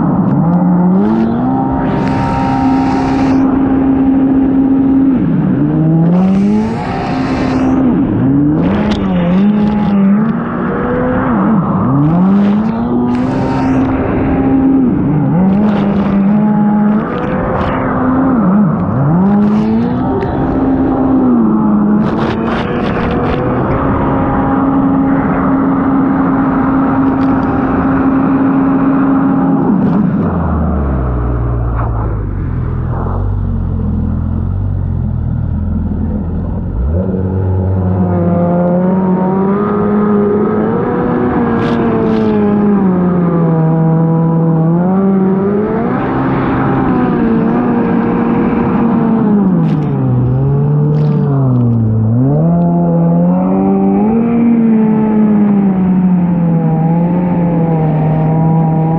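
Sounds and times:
jet ski engine revving: 0:00.6 - 0:05.1.

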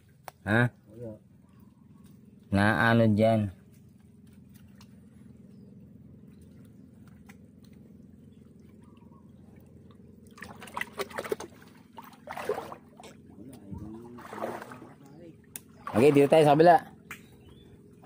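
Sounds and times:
faint low hum: 0:00.0 - 0:18.0
water splashing and sloshing: 0:06.2 - 0:17.1.

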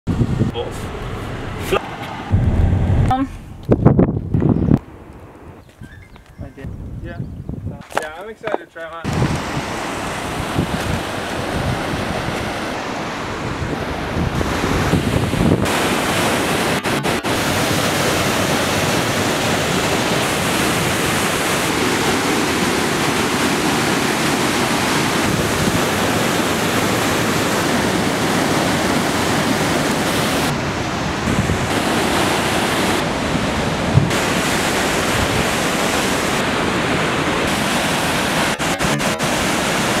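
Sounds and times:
waterfall and rapids rushing: 0:00.1 - 0:03.1, 0:09.0 - 0:40.0
brief thump: 0:01.1 - 0:04.0.

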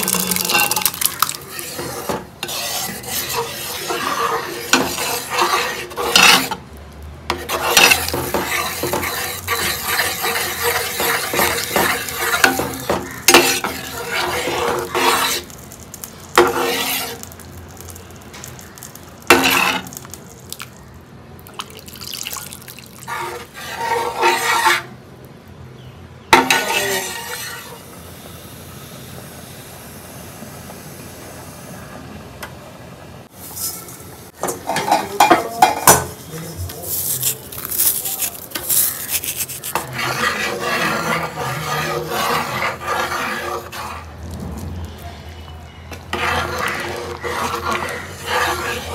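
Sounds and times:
spoon scraping in a pot: 0:00.0 - 0:06.6, 0:07.3 - 0:20.1, 0:22.8 - 0:25.0, 0:26.3 - 0:27.9, 0:34.4 - 0:44.2, 0:44.8 - 0:48.9
cutlery and dishes clinking: 0:34.4 - 0:36.2.

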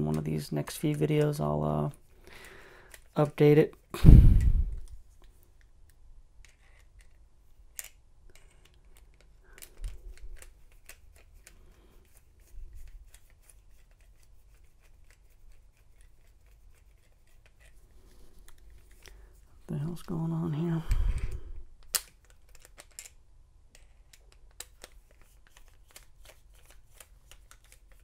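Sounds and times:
screwdriver metal clicks and scrapes: 0:02.9 - 0:03.5, 0:04.8 - 0:19.2, 0:20.8 - 0:28.0.

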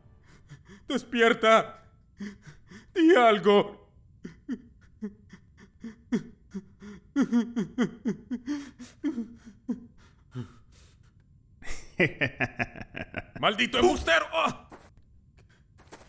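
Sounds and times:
man laughing: 0:04.2 - 0:09.9, 0:11.6 - 0:14.6
man shouting: 0:13.4 - 0:14.6.

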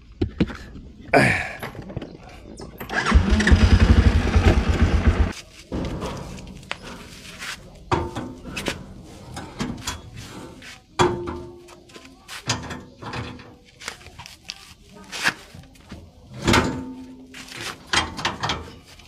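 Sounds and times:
atv engine running: 0:03.0 - 0:05.3
metal clanks and knocks: 0:05.7 - 0:07.1, 0:07.9 - 0:11.6, 0:17.8 - 0:18.8.

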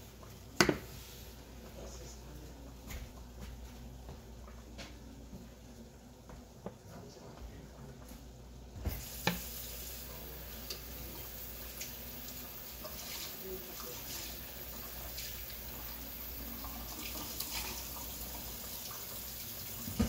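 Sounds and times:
tap water running into sink: 0:08.8 - 0:20.0.

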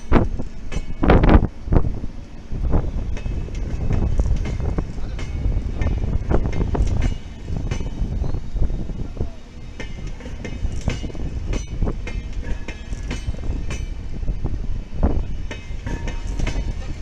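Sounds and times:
train low rumble: 0:00.0 - 0:17.0
train wheels clacking on rail joints: 0:00.0 - 0:17.0
high-pitched wheel squeals: 0:07.5 - 0:09.8.

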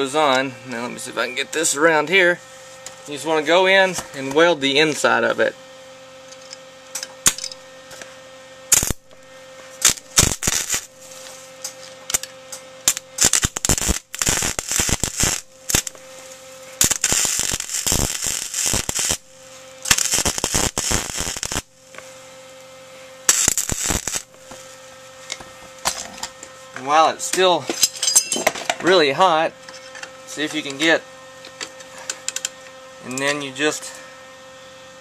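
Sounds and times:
steady welder hum: 0:00.0 - 0:35.0
welder arc crackling: 0:06.4 - 0:27.6, 0:30.3 - 0:33.8.

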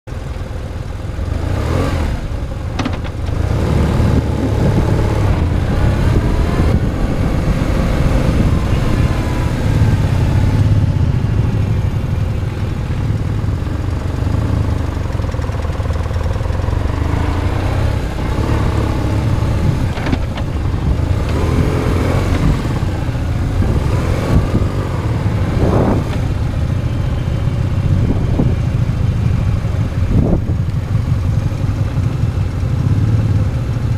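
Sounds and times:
motorcycle engine rumbling: 0:00.1 - 0:33.9.

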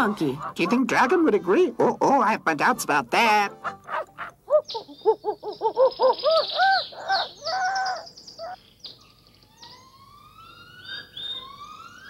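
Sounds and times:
hooting animal calls: 0:03.6 - 0:08.6
rising whistled bird calls: 0:04.5 - 0:12.0.

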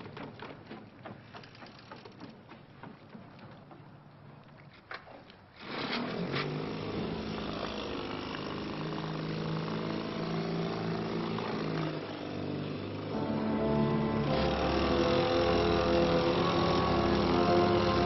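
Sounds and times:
outboard motor running: 0:06.5 - 0:18.0.

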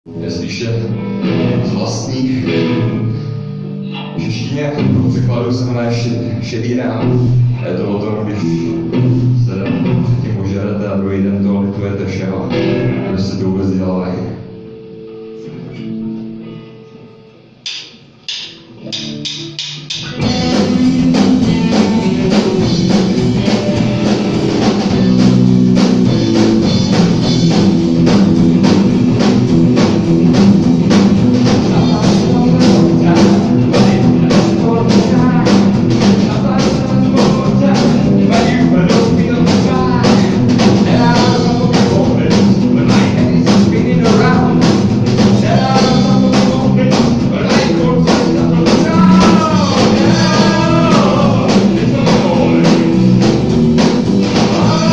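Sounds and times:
electric bass: 0:00.0 - 0:54.9
man singing: 0:00.1 - 0:14.6, 0:20.2 - 0:26.3, 0:31.4 - 0:54.9
electric guitar: 0:00.1 - 0:54.9
drum kit steady beat: 0:17.6 - 0:54.9.

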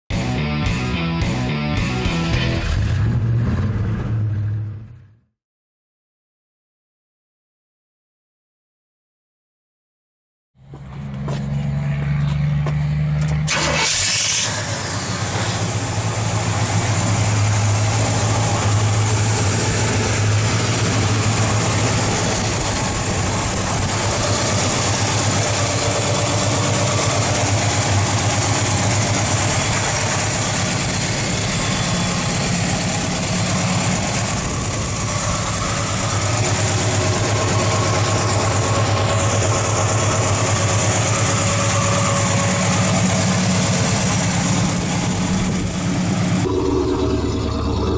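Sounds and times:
car engine idling: 0:10.6 - 0:47.9
car engine cranking on starter: 0:13.2 - 0:32.3.

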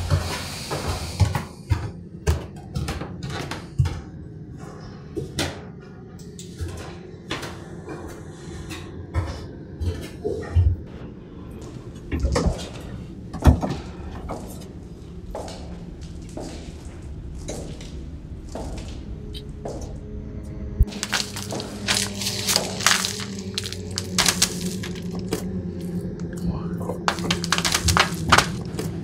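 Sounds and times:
footsteps on wooden stairs: 0:15.3 - 0:19.8, 0:20.8 - 0:25.3, 0:27.1 - 0:28.9.

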